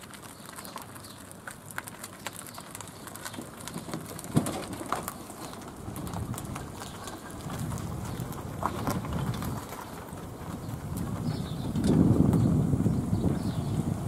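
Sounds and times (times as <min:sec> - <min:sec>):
bird chirps: 0:12.4 - 0:13.8.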